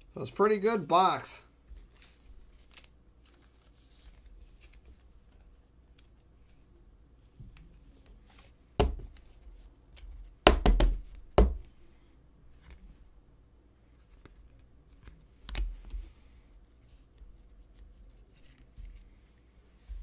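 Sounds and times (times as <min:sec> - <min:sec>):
cards clicking and rustling: 0:01.8 - 0:06.6.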